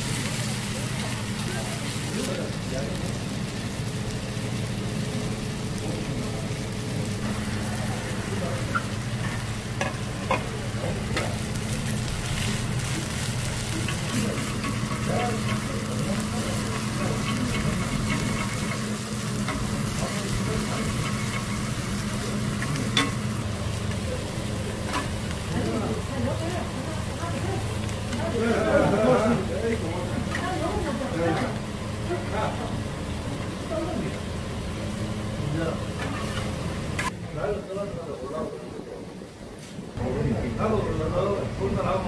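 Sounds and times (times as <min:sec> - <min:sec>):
oil sizzling on a griddle: 0:00.0 - 0:37.2
metal spatulas scraping griddle: 0:13.7 - 0:23.2, 0:36.0 - 0:37.1.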